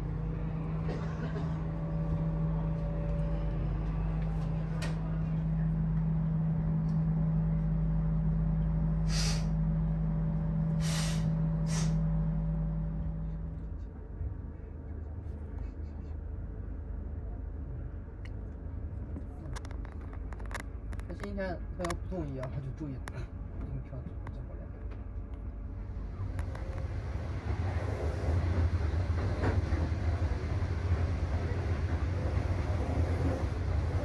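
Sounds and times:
low electrical hum: 0.0 - 27.4
low rumble: 0.0 - 34.0
sharp hisses of air: 9.1 - 9.5, 10.8 - 12.0.

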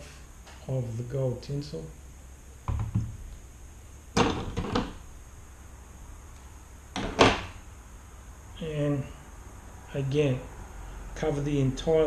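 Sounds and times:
knocks and clunks of handling: 2.7 - 3.2, 4.2 - 5.0, 7.0 - 7.5.

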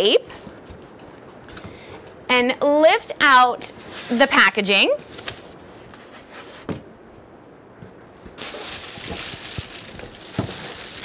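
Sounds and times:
plastic bag crinkling: 8.3 - 11.0.

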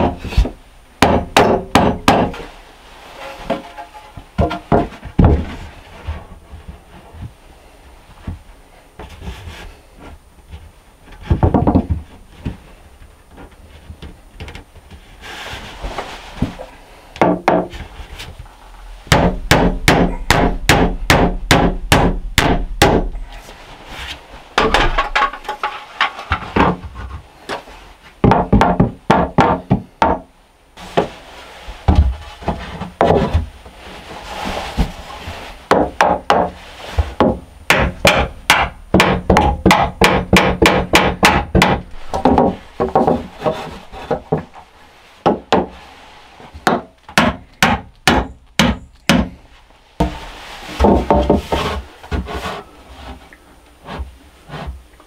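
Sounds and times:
hammer driving nails into boards: 19.1 - 23.1, 37.2 - 43.1, 46.6 - 49.4.

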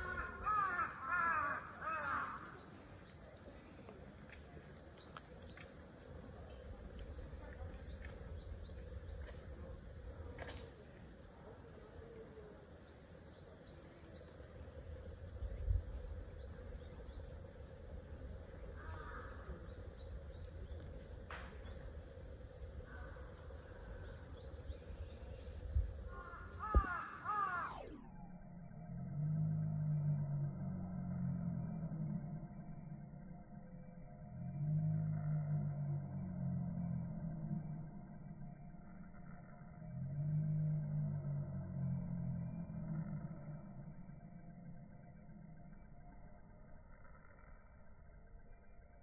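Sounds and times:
crows cawing: 0.0 - 2.7, 18.8 - 19.5, 26.1 - 27.8
steady low rumble: 0.0 - 49.0.

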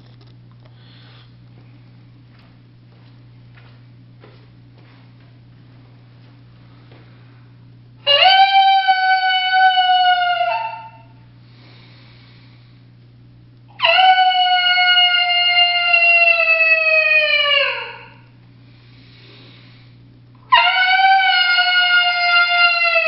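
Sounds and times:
coyote howler call: 8.0 - 11.2, 13.7 - 18.2, 20.5 - 23.0.

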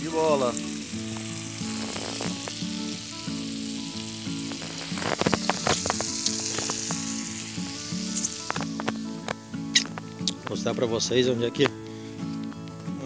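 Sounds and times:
fish sizzling in oil: 0.0 - 12.6
faint background music: 0.0 - 13.0
crackling of dry brush: 0.4 - 10.7.

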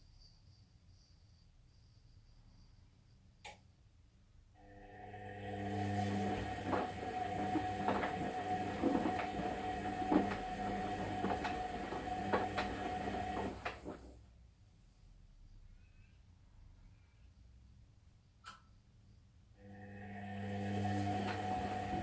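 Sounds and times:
washing machine motor whine: 4.6 - 14.1, 19.6 - 22.0.

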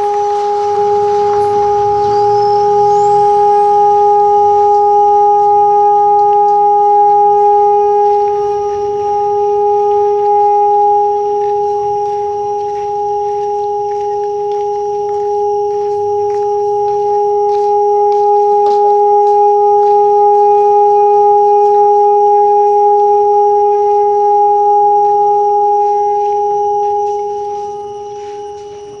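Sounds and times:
rubbed gong humming: 0.0 - 14.3.

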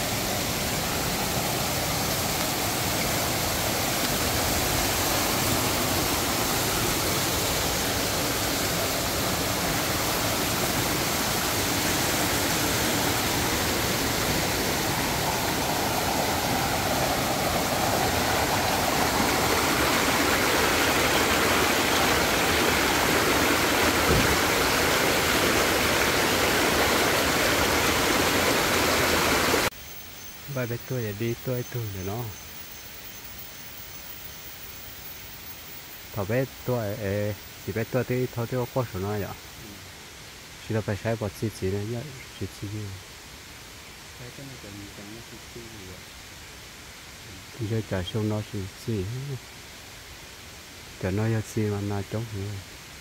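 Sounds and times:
stream rushing over stones: 0.0 - 29.7.

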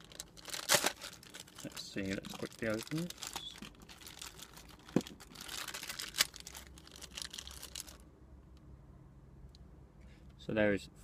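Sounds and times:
packaging crinkling and rustling: 0.0 - 8.0.

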